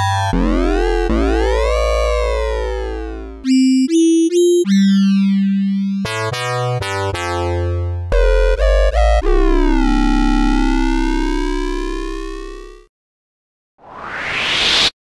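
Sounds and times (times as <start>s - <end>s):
synthesizer notes: 0.0s - 12.8s.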